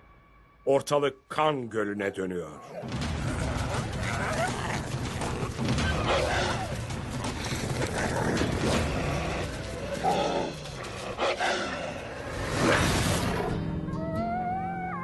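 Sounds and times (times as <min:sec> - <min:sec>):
coyotes snarling and growling: 0:02.6 - 0:13.7.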